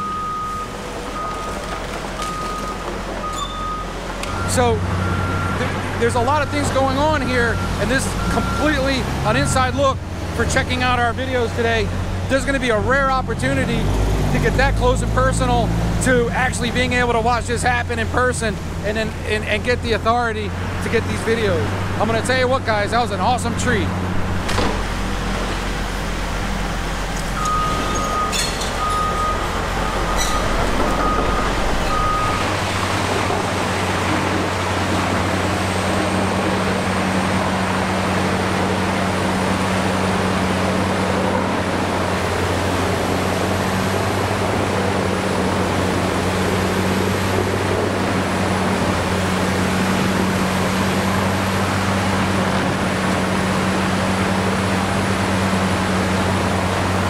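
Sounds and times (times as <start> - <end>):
broken beeping tone: 0.0 - 9.8, 27.4 - 32.9
wood grinder and excavator running: 0.0 - 57.0.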